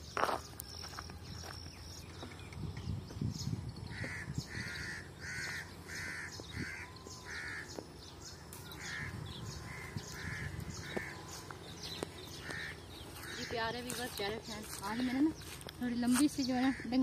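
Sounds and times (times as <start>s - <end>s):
crow cawing: 3.9s - 7.8s, 8.8s - 11.4s, 12.3s - 14.1s, 16.6s - 17.0s.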